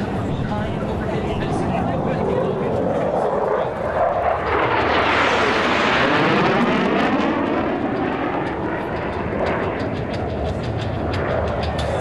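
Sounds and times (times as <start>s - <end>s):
jet whooshing by: 0.0s - 11.8s
jet engine roar: 0.0s - 12.0s.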